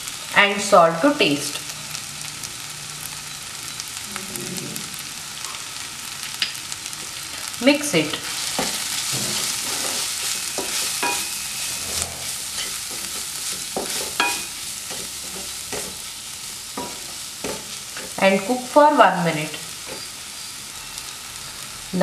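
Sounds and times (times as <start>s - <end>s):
masala sizzling in a pan: 0.0s - 22.0s
wooden spatula scraping a pan: 8.4s - 16.2s.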